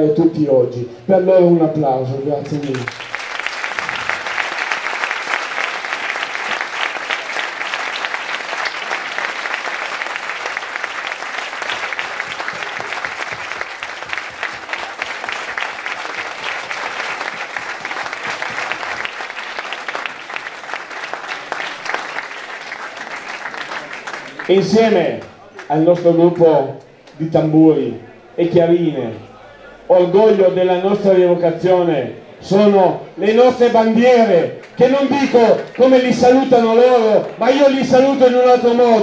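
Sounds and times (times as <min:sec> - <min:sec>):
crowd applauding: 0:02.4 - 0:26.4, 0:34.6 - 0:39.0.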